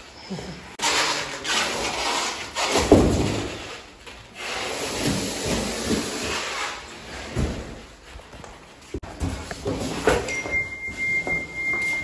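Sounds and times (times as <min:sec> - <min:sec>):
cardboard scraping: 0:00.8 - 0:08.2.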